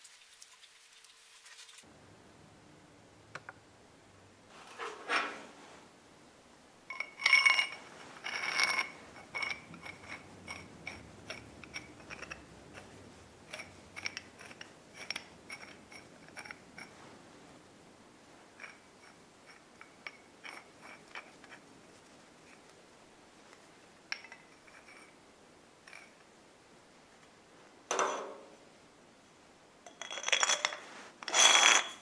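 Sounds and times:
metal scrape: 4.5s - 5.8s, 6.9s - 17.2s, 29.9s - 32.0s.

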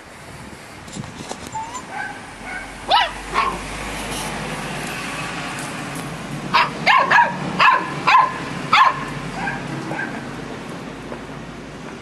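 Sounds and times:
puppy yipping and barking: 1.5s - 3.6s, 6.5s - 10.2s.

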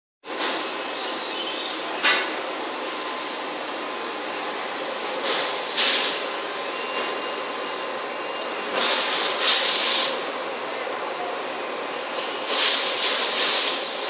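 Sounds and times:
steady machine noise: 0.3s - 14.0s
loud bursts of hiss: 5.2s - 6.3s, 8.7s - 10.3s, 11.4s - 14.0s.

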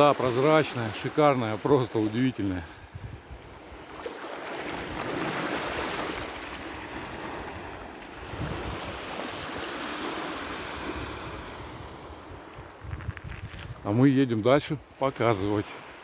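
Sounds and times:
small waves washing onto sand: 0.0s - 16.0s
wind buffeting microphone: 2.8s - 3.6s, 6.9s - 9.6s, 10.8s - 14.0s.

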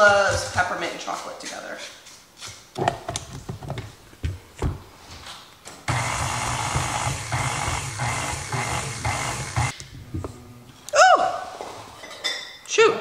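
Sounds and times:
stand mixer motor running: 5.9s - 9.7s.

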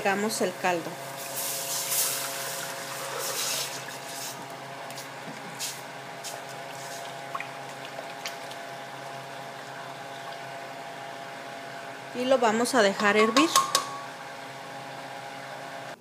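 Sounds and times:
steady hum: 0.0s - 16.0s
broth pouring into metal pot: 1.1s - 4.3s.

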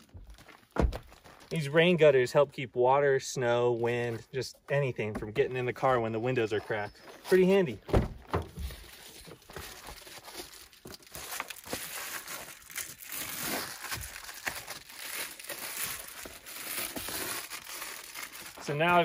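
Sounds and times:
foil insulation crinkling: 8.5s - 19.0s.

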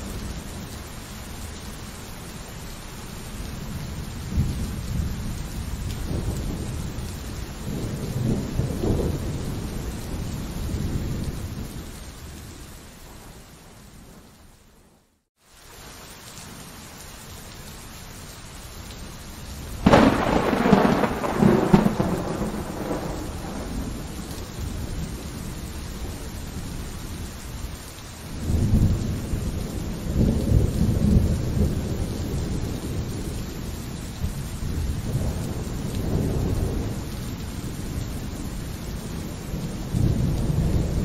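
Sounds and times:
heavy rain: 0.0s - 41.0s
thunder crack and rumble: 4.3s - 11.8s, 19.8s - 26.8s, 28.4s - 41.0s.

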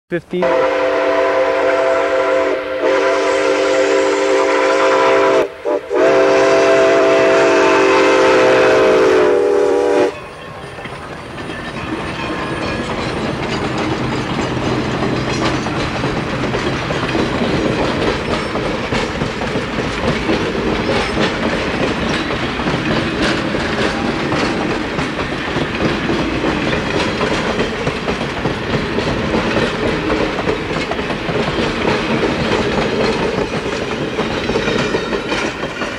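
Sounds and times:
steam locomotive whistle: 0.4s - 10.6s
train cars rumbling past: 0.4s - 35.9s
wheels clacking over rail joints: 10.2s - 35.9s.

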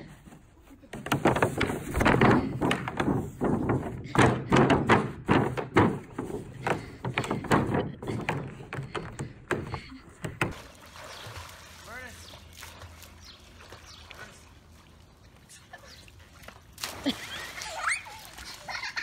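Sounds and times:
plastic pool thunks on grass: 0.9s - 11.2s.

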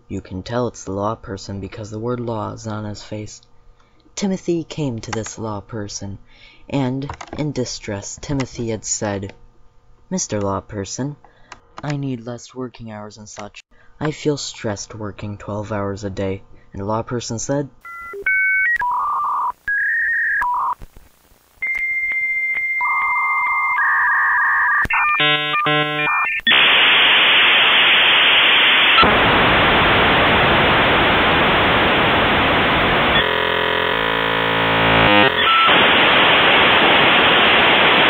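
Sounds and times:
phone-line tones: 17.8s - 20.8s, 21.6s - 29.1s, 31.0s - 37.5s
stepped warbling tones: 22.9s - 26.9s, 30.8s - 36.6s.

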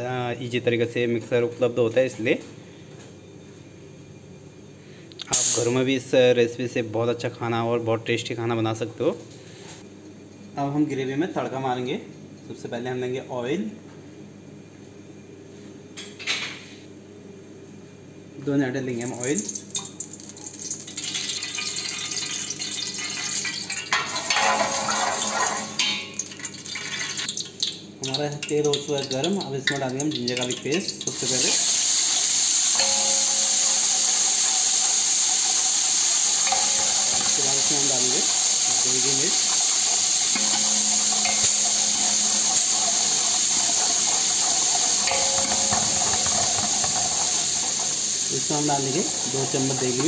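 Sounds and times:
oil hissing in a pot: 19.0s - 50.0s.

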